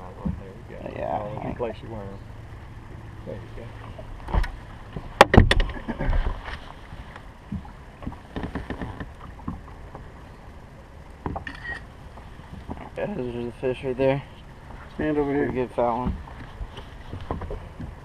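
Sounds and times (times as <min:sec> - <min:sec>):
knocks and thumps on boat deck: 0:00.0 - 0:00.6, 0:04.2 - 0:06.6, 0:07.5 - 0:10.1, 0:15.4 - 0:18.0.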